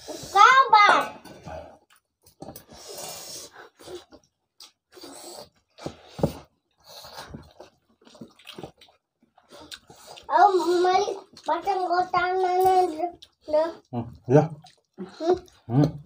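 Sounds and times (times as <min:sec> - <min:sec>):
people chewing food: 0:01.2 - 0:16.0
breathing while eating: 0:02.5 - 0:04.2, 0:04.9 - 0:07.6, 0:09.4 - 0:11.3.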